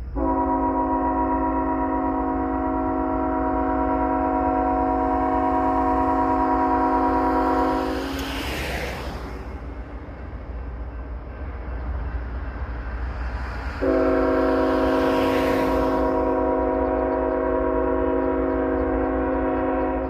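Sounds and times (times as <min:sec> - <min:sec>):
locomotive air horn chord: 0:00.0 - 0:08.4, 0:13.8 - 0:20.0
passing car tyre noise: 0:04.7 - 0:19.3.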